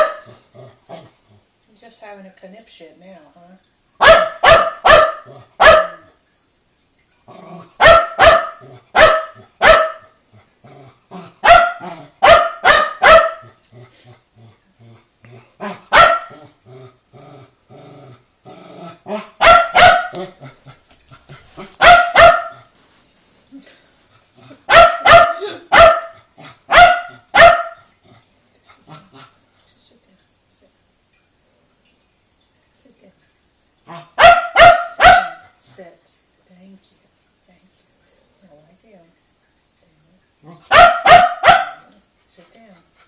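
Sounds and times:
dog barking: 0.0s - 0.3s, 4.0s - 6.1s, 7.8s - 10.1s, 11.4s - 13.5s, 15.9s - 16.4s, 19.4s - 20.2s, 21.8s - 22.7s, 24.7s - 27.9s, 34.0s - 35.6s, 40.6s - 41.9s
dog grumbling: 10.3s - 12.2s, 13.4s - 19.4s.

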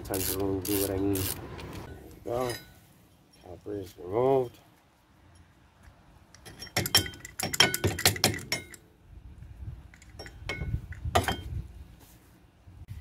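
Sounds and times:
metal clinking and rattling: 6.4s - 8.8s.

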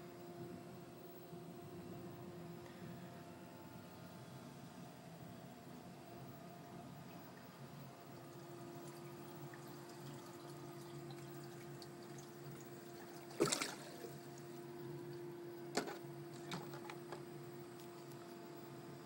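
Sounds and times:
plastic bottle crackle-clunk: 15.7s - 17.2s.

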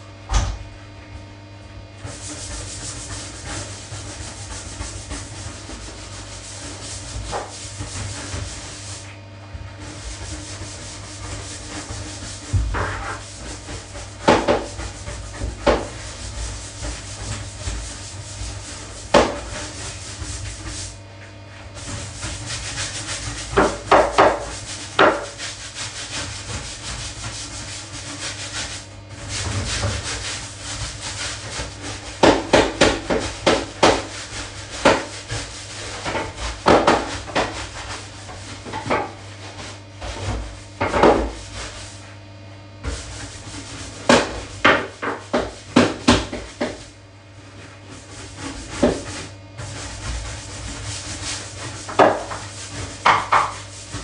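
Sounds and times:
gloved hand scrubbing glass: 9.7s - 20.9s.

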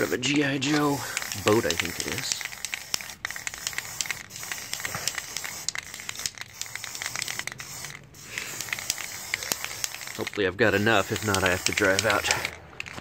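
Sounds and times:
spray-paint can hissing: 0.0s - 13.0s
small crackles: 11.2s - 13.0s.

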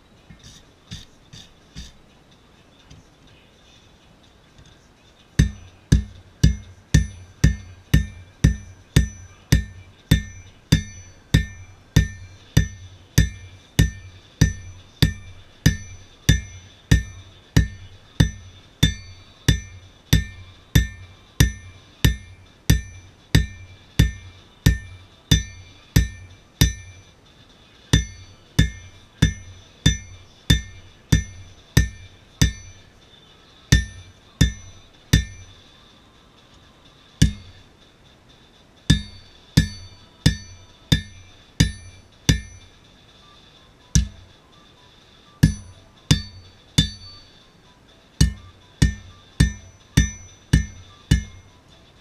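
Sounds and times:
hammer striking on anvil: 0.3s - 2.0s, 5.4s - 27.2s, 27.9s - 33.0s, 33.7s - 35.7s, 37.2s - 37.7s, 38.9s - 42.8s, 43.9s - 44.4s, 45.4s - 47.4s, 48.2s - 51.6s.

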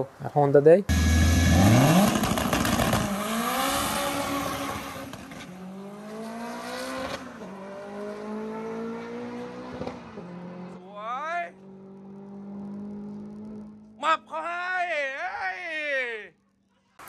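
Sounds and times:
car engine accelerating: 0.9s - 10.8s, 11.6s - 14.0s.

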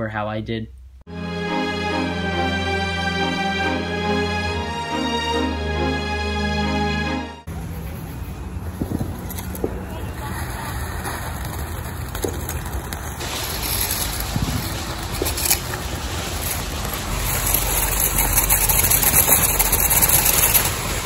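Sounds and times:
firework hissing: 8.3s - 21.0s
firework crackles: 8.4s - 21.0s.

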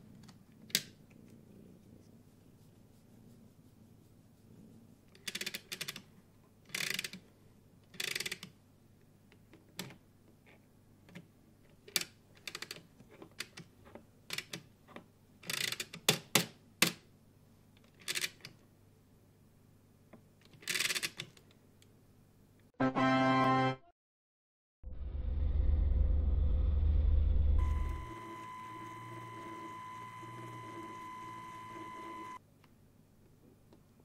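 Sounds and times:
plastic ratchet clicking: 6.7s - 7.2s, 7.9s - 8.5s, 15.4s - 16.0s, 20.5s - 21.3s.

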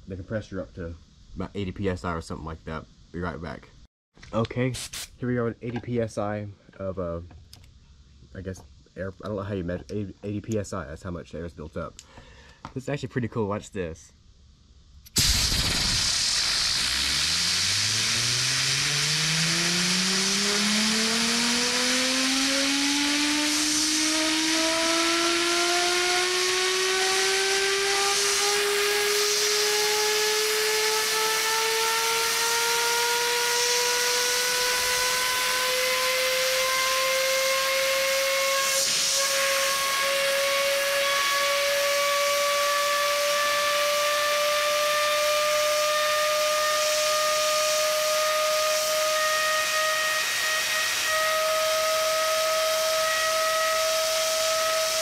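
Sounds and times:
compressed air hissing: 4.7s - 5.2s, 15.1s - 21.5s, 22.2s - 24.7s, 38.6s - 39.7s
rising whine of spinning rotor: 15.1s - 55.0s.

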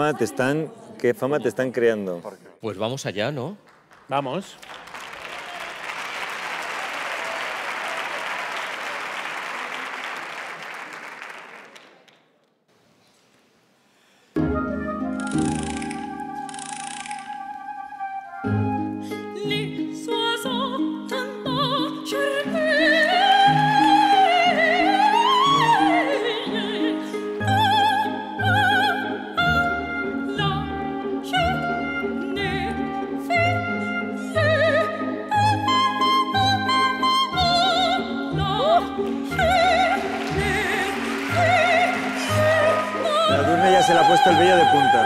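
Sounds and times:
audience applause: 3.6s - 12.3s, 39.3s - 45.0s
instrumental accompaniment: 14.4s - 45.0s
woman singing operatically: 19.1s - 45.0s.

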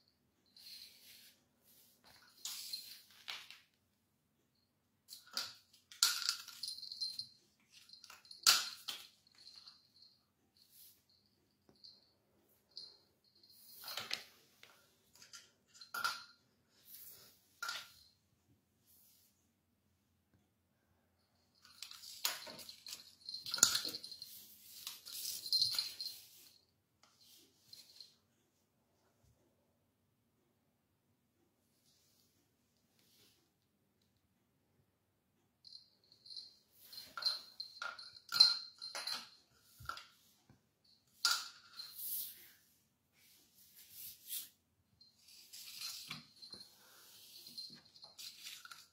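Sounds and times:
plastic cap clattering on tile floor: 5.1s - 6.8s, 15.2s - 16.3s
bottle cap clattering on tiles: 5.1s - 9.7s, 15.2s - 16.4s, 21.6s - 24.2s, 36.2s - 40.1s, 41.1s - 42.1s.

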